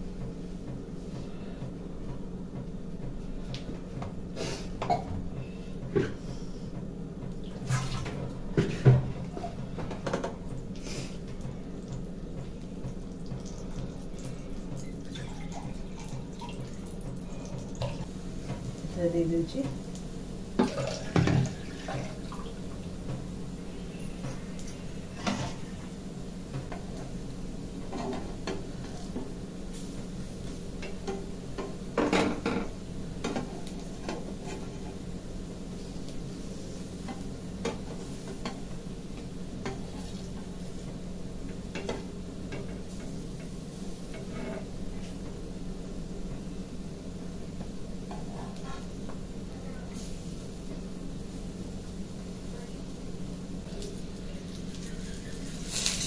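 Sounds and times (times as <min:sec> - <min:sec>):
steady low hum: 0:00.0 - 0:56.0
spatula scraping frying pan: 0:34.0 - 0:35.0, 0:44.2 - 0:44.8, 0:48.1 - 0:48.9.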